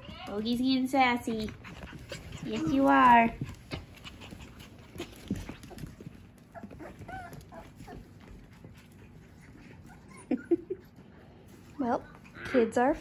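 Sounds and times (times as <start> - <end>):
puppies whimpering and yipping: 1.4 - 10.9.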